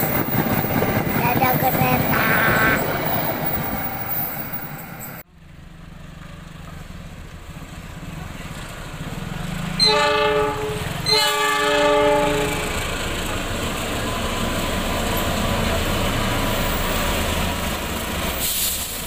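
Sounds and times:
train coaches rumbling on rails: 0.0 - 5.3, 6.1 - 19.0
diesel locomotive droning: 0.0 - 19.0
train horn blasts: 9.8 - 12.8.

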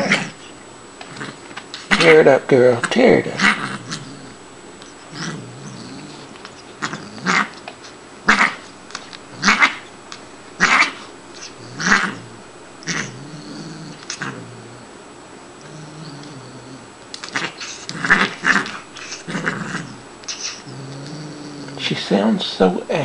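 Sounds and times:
cat growling low: 0.0 - 0.4, 1.0 - 2.1, 3.2 - 4.4, 5.1 - 7.6, 10.6 - 15.0, 15.6 - 22.0
cat hissing: 5.1 - 8.7, 9.3 - 9.9, 10.6 - 14.9, 15.7 - 21.8.

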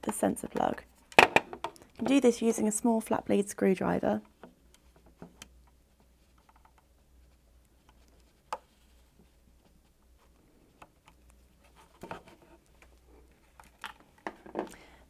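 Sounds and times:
faint plastic clicks and handling: 4.2 - 15.0.

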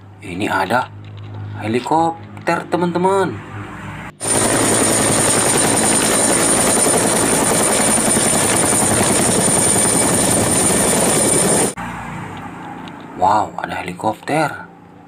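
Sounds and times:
helicopter rotor thumping: 4.2 - 11.8.

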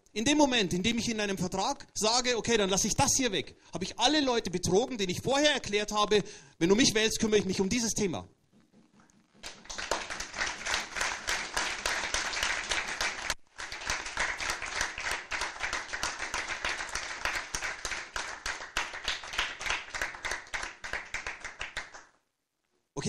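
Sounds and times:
audience applauding: 9.4 - 22.2.

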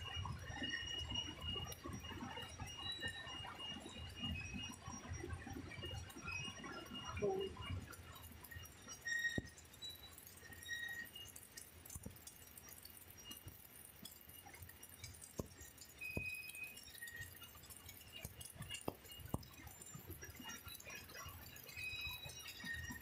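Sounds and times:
sharp drips and clinks: 5.9 - 23.0
water dripping into metal tank: 7.2 - 23.0.

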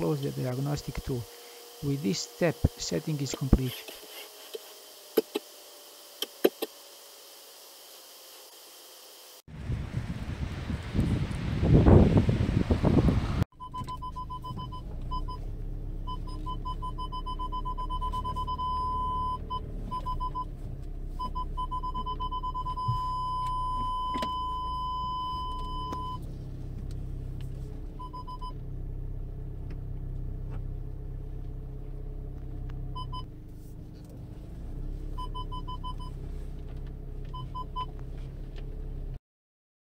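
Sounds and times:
low car rumble: 9.5 - 39.2
parking sensor beeping: 13.6 - 20.6, 21.2 - 26.3, 28.0 - 28.6, 32.9 - 33.3, 35.2 - 36.2, 37.3 - 38.0
continuous warning tone: 16.1 - 20.5, 21.2 - 26.2.

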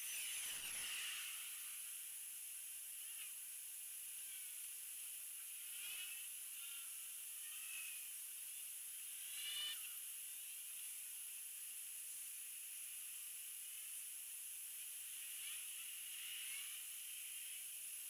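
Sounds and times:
faint gliding whines: 0.0 - 14.0.

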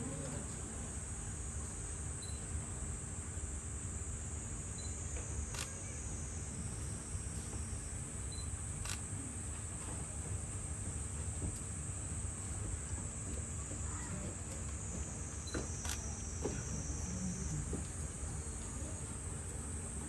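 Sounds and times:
high drone of insects: 0.0 - 20.0
camera shutter clicks: 5.5 - 5.7.

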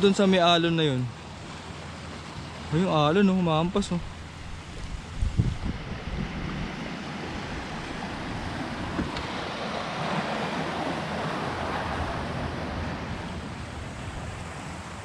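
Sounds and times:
waves washing over pebbles: 1.3 - 15.0
wind buffeting microphone: 3.6 - 15.0.

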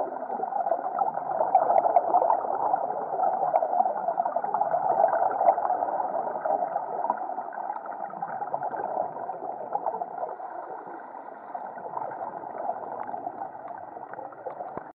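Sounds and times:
faint underwater clicks: 6.4 - 14.9.

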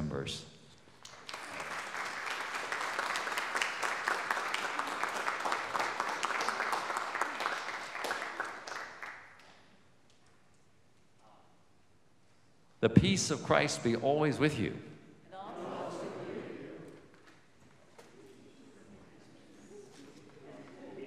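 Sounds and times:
congregation applauding: 1.0 - 9.8.

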